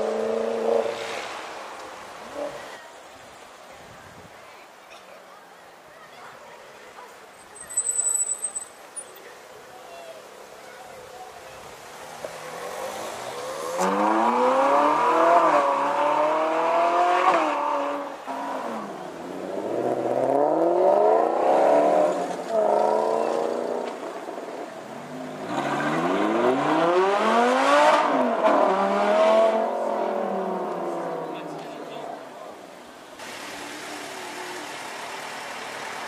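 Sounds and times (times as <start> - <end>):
sports car engine accelerating: 12.8 - 18.0, 25.3 - 31.3.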